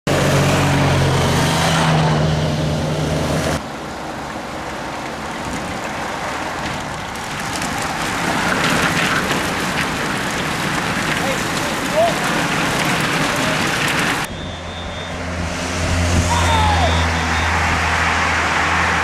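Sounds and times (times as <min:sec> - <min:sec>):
motorcycle engines passing: 0:00.1 - 0:19.0
bicycles riding over cobblestones: 0:04.2 - 0:15.1
crackling rattle: 0:05.1 - 0:14.3.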